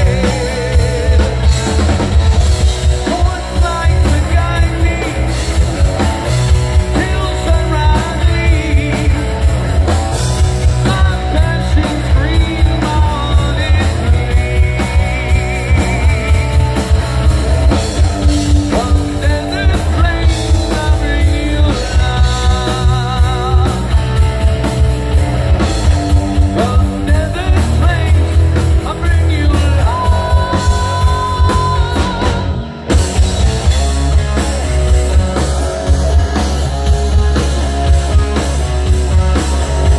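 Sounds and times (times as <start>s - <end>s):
lead vocal singing: 0.0s - 24.2s, 26.1s - 32.9s
rock band playing: 0.0s - 39.9s.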